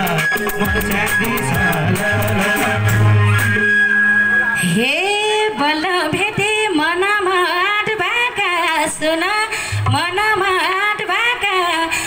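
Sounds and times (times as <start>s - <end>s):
woman singing over loudspeakers: 4.6s - 12.0s.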